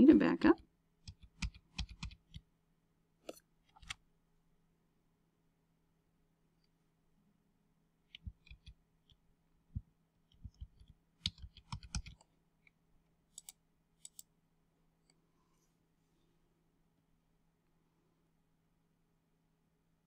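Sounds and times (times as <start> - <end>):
keyboard keys clicking: 1.0 - 2.4, 8.2 - 8.8, 10.3 - 12.2.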